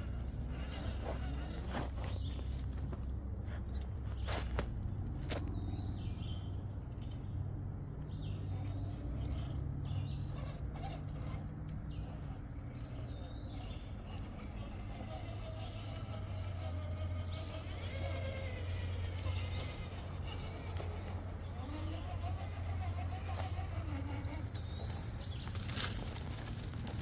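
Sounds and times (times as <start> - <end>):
electric motors humming: 0.0 - 27.0
bird calling: 8.2 - 26.7.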